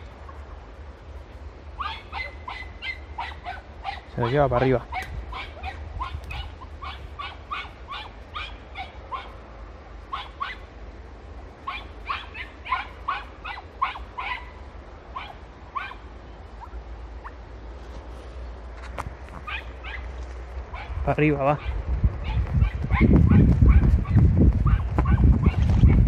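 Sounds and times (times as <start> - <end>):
puppies yelping: 1.8 - 9.4, 10.0 - 10.7, 11.6 - 17.4, 19.4 - 20.1, 20.7 - 26.0
low microphone rumble: 20.6 - 26.0.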